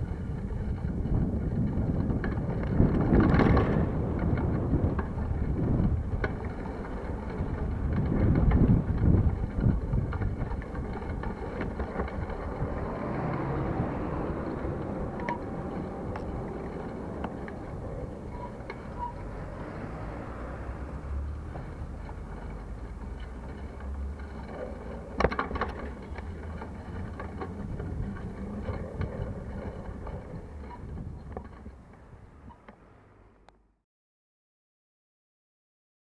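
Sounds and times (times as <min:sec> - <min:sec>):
sharp clatter: 0:00.0 - 0:13.0
bicycle riding rumble: 0:00.0 - 0:33.8
city traffic: 0:00.0 - 0:33.8.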